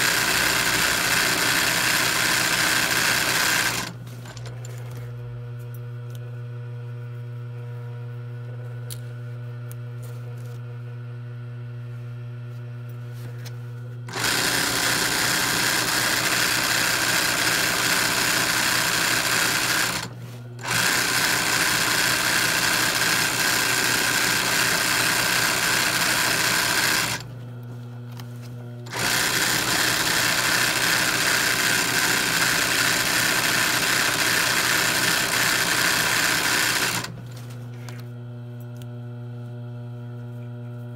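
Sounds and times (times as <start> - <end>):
sewing machine needle stitching: 0.0 - 4.6, 14.1 - 27.3, 28.9 - 37.2
sewing machine motor humming: 0.0 - 4.8, 14.1 - 27.4, 28.8 - 37.4.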